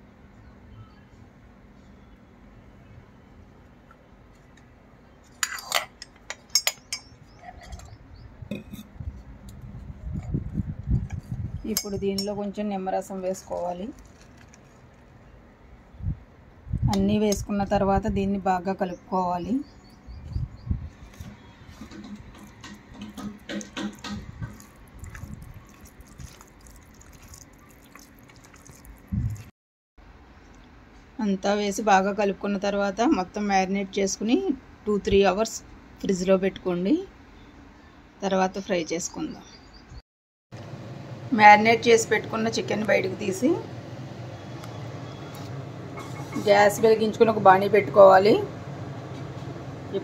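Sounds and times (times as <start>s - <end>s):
hand squishing wet chicken: 23.4s - 29.5s.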